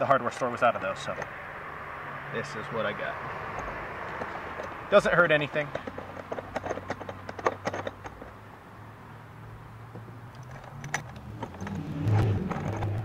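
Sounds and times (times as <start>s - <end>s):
metal nuts and washers clinking: 0.0s - 1.4s, 3.5s - 8.4s, 10.0s - 13.0s.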